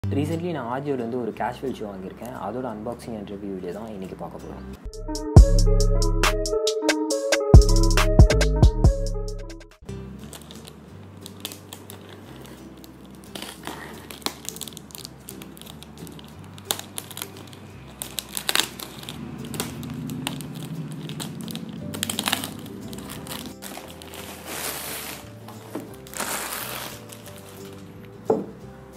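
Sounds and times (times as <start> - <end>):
quiet background music: 0.0 - 28.9
plastic bag crinkling and tearing: 10.2 - 28.1.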